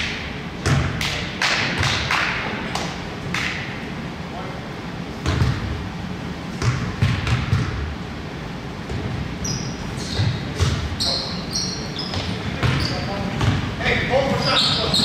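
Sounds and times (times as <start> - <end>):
basketball bouncing on wood floor: 0.6 - 1.0, 5.2 - 5.7, 6.6 - 7.9, 10.1 - 11.0, 12.0 - 13.7
shoes squeaking on court: 8.9 - 15.0.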